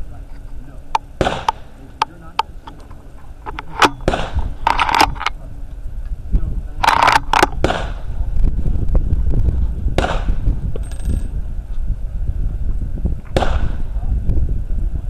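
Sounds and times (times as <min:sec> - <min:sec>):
rifle sharp clicks: 0:00.9 - 0:05.4, 0:06.8 - 0:07.9.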